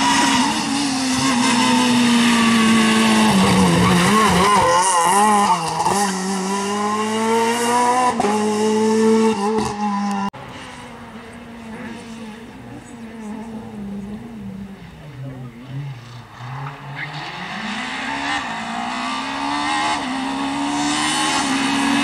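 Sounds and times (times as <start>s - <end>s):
distant rally car engine: 0.0s - 22.0s
rally car engine revving: 0.0s - 22.0s.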